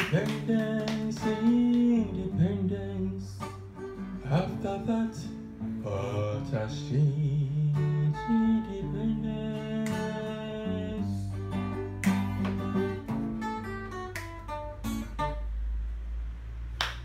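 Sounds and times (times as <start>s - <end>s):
hand clapping: 0.0s - 2.0s, 9.8s - 10.2s, 11.7s - 13.1s, 14.1s - 14.6s, 16.8s - 17.0s
acoustic guitar plucking and strumming: 0.0s - 16.0s.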